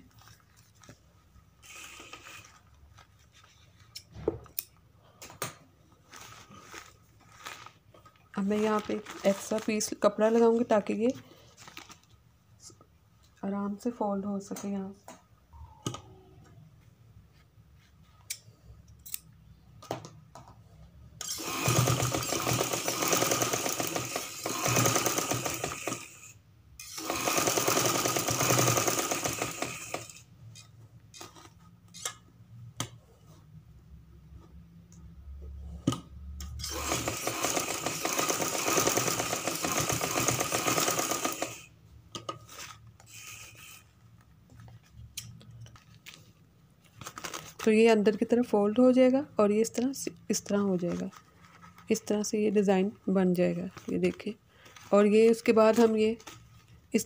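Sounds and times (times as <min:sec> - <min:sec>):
sewing machine stitching: 0:21.2 - 0:30.2, 0:36.6 - 0:41.7.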